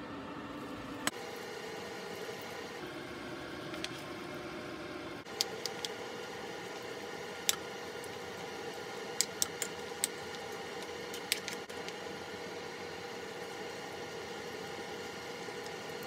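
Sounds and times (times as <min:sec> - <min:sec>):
steady background hum: 0:00.0 - 0:16.0.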